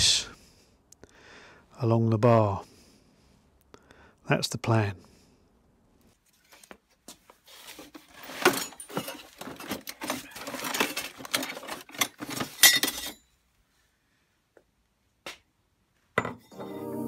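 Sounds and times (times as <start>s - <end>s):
steel scraps clattering: 7.7s - 13.2s.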